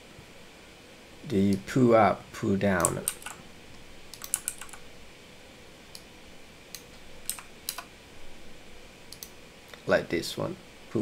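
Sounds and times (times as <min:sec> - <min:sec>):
computer keyboard typing: 0:02.8 - 0:03.4, 0:04.1 - 0:04.8, 0:07.2 - 0:07.9.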